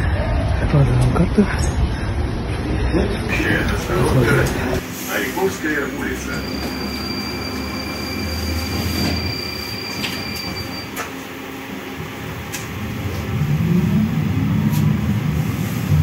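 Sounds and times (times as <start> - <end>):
tram rumble: 0.0 - 16.0
thin high whine: 5.1 - 11.1.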